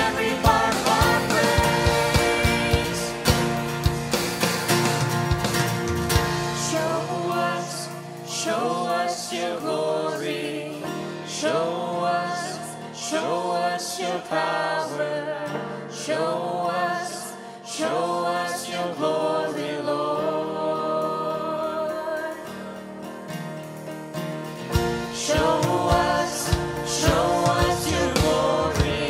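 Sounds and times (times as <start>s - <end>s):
voices singing worship song: 0.0s - 5.2s, 6.1s - 23.3s, 24.7s - 29.0s
instrumental backing: 0.0s - 8.3s, 22.5s - 29.0s.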